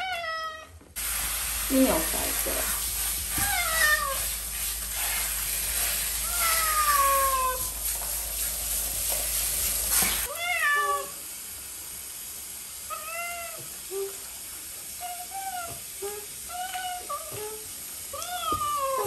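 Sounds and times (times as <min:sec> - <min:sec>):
shower spray hissing: 0:01.0 - 0:19.0
cat meowing: 0:03.3 - 0:04.2, 0:06.2 - 0:07.7, 0:10.3 - 0:11.2, 0:18.2 - 0:19.0.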